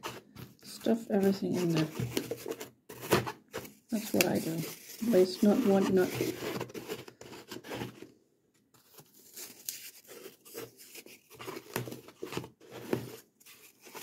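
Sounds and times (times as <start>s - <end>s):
floral foam crunching and scraping: 0.0s - 3.1s, 3.7s - 8.0s.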